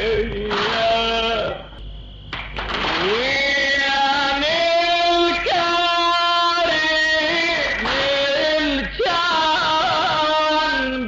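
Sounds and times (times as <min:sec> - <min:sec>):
man chanting a lament: 0:02.9 - 0:11.0.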